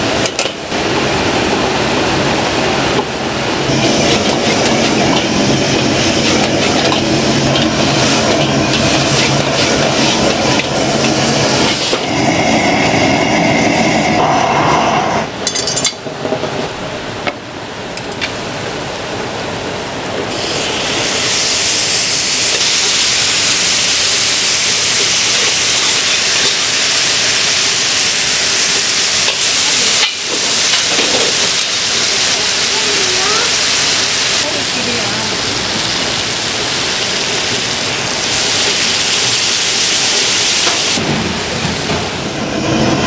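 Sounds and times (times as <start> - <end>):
food sizzling on hot plate: 20.4 - 42.0.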